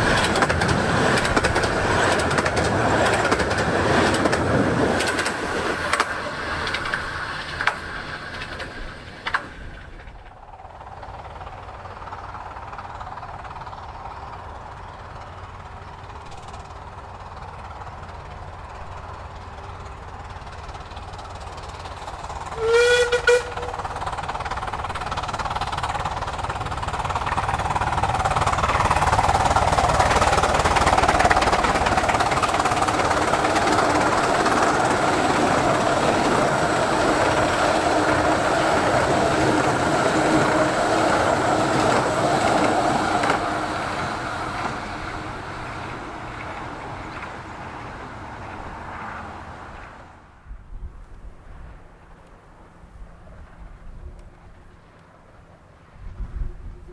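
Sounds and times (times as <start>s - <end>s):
steam locomotive running: 0.0s - 50.5s
steam whistle: 22.5s - 23.9s.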